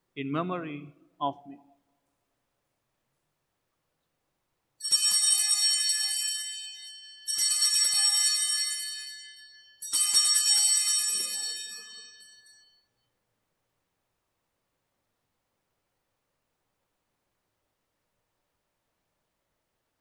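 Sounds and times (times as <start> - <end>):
small bells jangling: 4.8 - 12.8.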